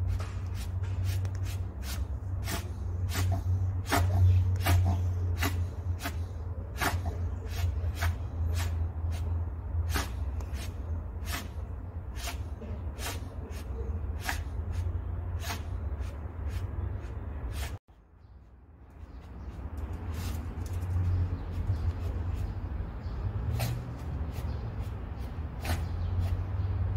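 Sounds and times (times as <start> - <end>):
dog sniffing and snorting: 0.5 - 17.8, 23.4 - 26.6.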